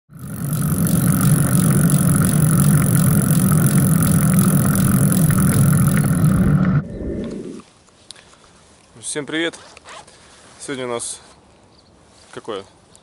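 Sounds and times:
bicycle road noise: 0.0 - 7.6.

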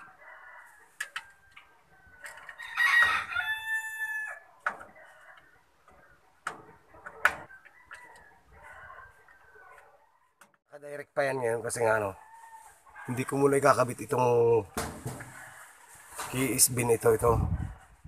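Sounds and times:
rooster crowing: 0.0 - 1.6, 2.3 - 5.5, 7.5 - 10.0, 12.1 - 13.7.

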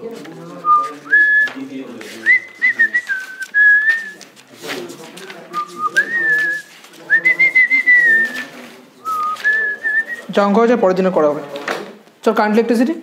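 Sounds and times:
person whistling a tune: 2.3 - 4.2.

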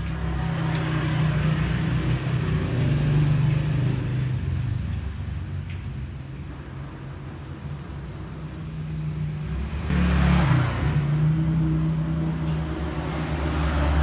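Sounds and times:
passing vehicle engine drone: 8.2 - 14.0.

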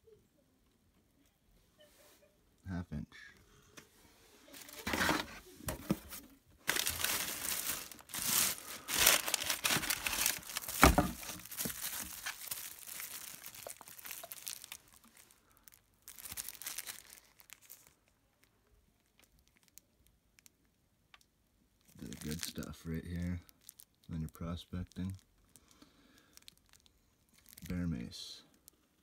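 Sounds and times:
paper and plastic rustling: 4.3 - 18.0.

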